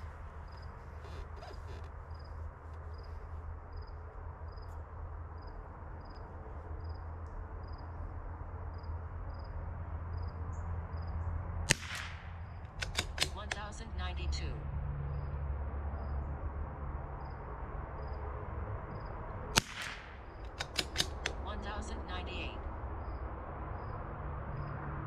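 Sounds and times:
rifle shot: 11.7 - 13.4, 19.5 - 21.4.

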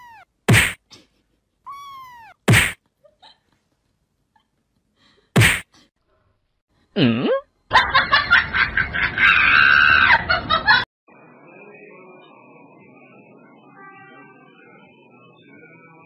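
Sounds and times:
sharp slap: 0.5 - 0.8, 2.5 - 2.8, 5.4 - 5.7
laughter: 3.0 - 4.6, 7.7 - 10.9.

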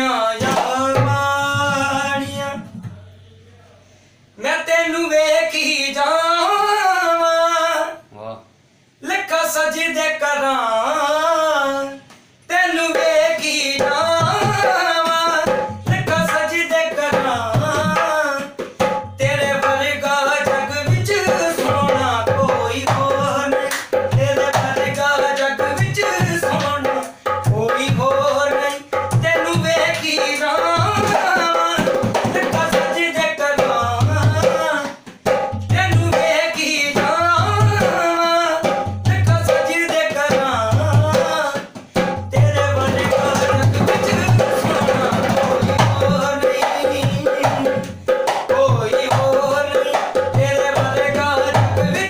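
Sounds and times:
man singing devotional song: 0.0 - 3.3, 4.4 - 8.4, 9.0 - 52.0
hand drum playing rhythm: 13.8 - 52.0.

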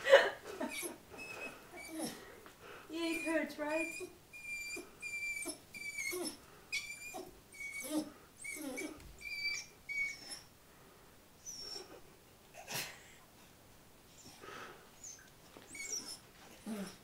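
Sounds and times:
puppy whimpering: 0.6 - 2.2, 3.0 - 10.5, 11.4 - 12.0, 15.0 - 17.0.

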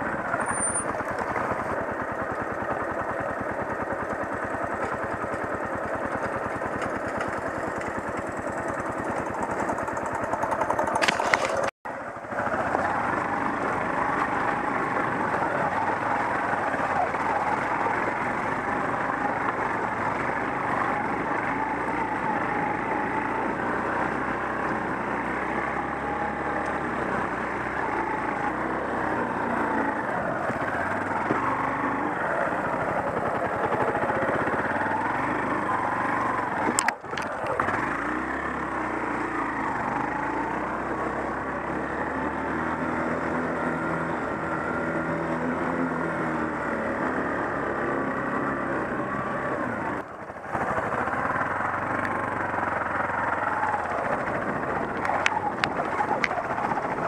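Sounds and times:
motorcycle engine running: 0.0 - 57.0
jostling and rushing noise: 8.6 - 13.2, 52.7 - 57.0.

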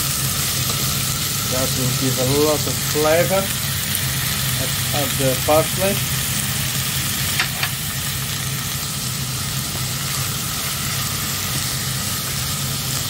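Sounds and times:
food sizzling in a pot: 0.0 - 13.0.

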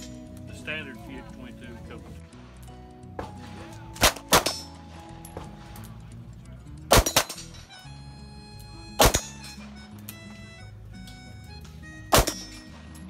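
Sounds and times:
background music: 0.0 - 13.0
handgun shots: 4.0 - 4.8, 6.9 - 7.6, 9.0 - 9.7, 12.1 - 12.8.

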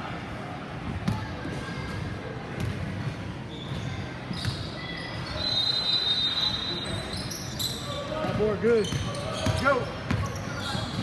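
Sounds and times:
basketball bouncing: 2.6 - 3.0, 8.2 - 11.0
shoe squeaks on court: 3.5 - 11.0.

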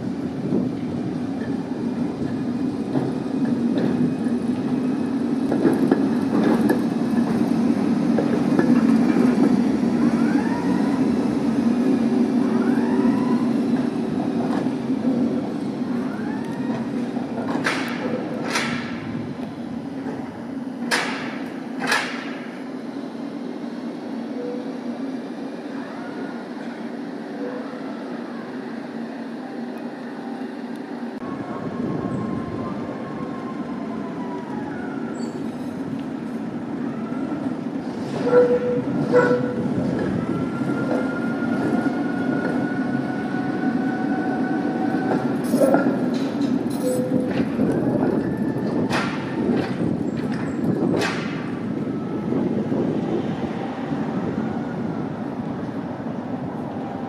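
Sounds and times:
tram rolling and motor noise: 0.0 - 57.0
tram wheels squealing: 0.8 - 19.1, 25.7 - 55.0
wheels clacking over rail joint: 17.2 - 19.2, 20.0 - 22.6, 44.9 - 51.6.

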